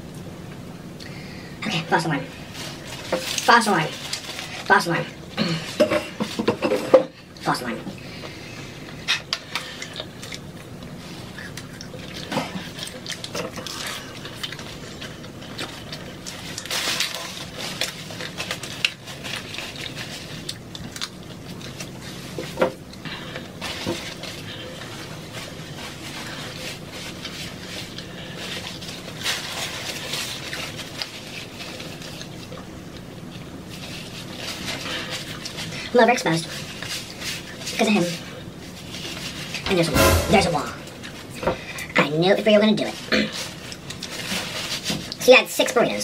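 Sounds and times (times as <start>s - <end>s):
chewing and mouth noises: 8.8s - 25.2s.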